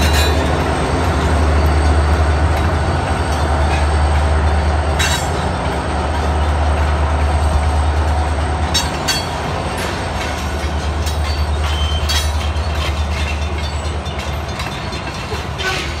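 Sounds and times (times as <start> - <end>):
freight train cars rumbling: 0.0 - 16.0
wheels clacking over rail joints: 0.0 - 16.0.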